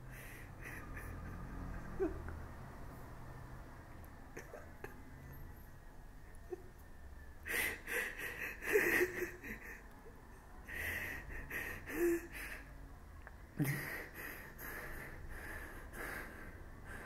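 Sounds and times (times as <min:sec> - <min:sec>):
man sobbing: 0:07.6 - 0:09.8.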